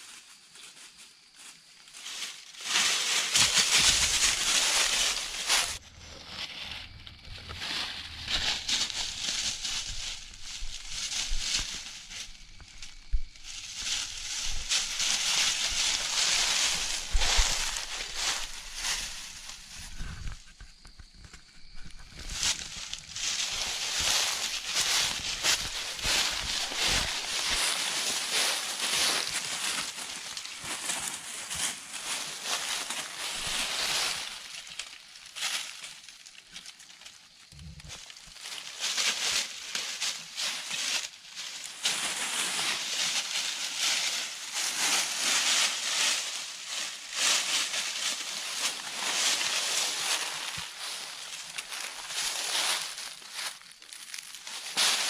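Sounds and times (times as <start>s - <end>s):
footsteps crunching through dry leaves: 0.0s - 55.0s.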